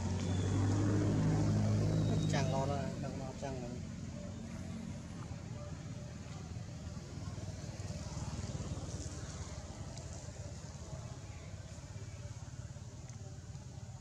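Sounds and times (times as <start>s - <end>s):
low outdoor rumble: 0.0s - 14.0s
faint ticks: 9.8s - 10.4s.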